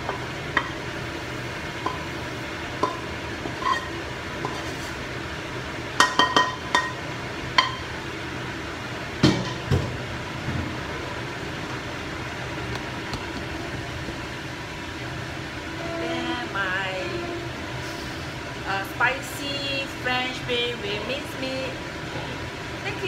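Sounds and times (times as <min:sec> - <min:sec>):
utensil scraping metal wok: 0:00.0 - 0:05.1
steady low hum: 0:00.0 - 0:23.0.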